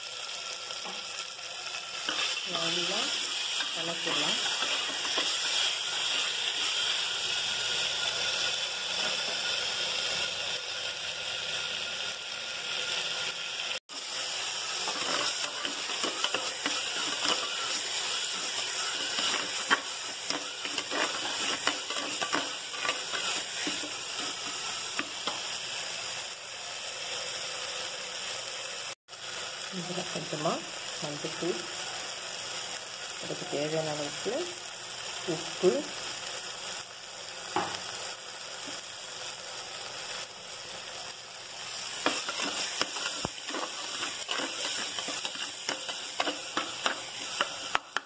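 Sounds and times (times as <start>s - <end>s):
food frying in oil: 0.0s - 48.0s
spatula scraping a pot: 2.0s - 2.4s, 3.2s - 6.7s, 14.6s - 25.4s, 41.9s - 47.8s.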